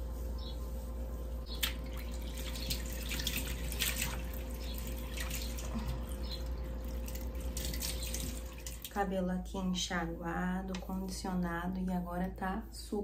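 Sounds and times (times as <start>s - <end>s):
hands splashing in hair: 1.6s - 4.4s
tap water splashing into basin: 1.6s - 5.9s.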